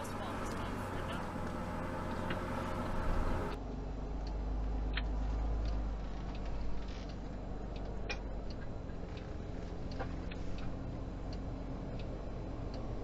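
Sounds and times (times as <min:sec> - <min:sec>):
faint regular ticking: 0:05.6 - 0:13.0.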